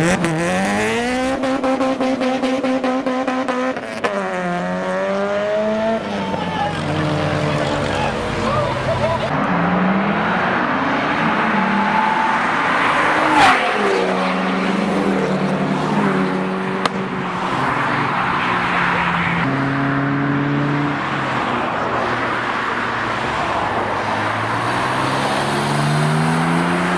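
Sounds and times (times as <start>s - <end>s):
car engines revving: 0.0s - 26.9s
sharp pop: 16.8s - 17.0s.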